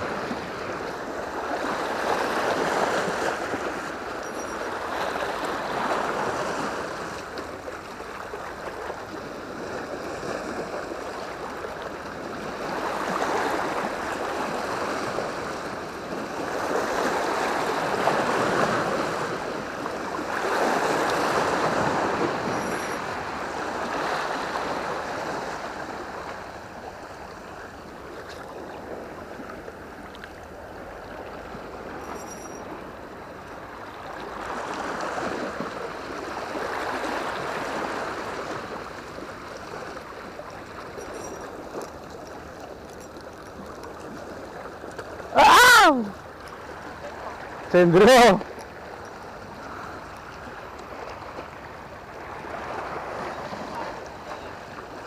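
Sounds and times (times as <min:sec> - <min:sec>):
sea waves washing against rocks: 0:00.0 - 0:27.1.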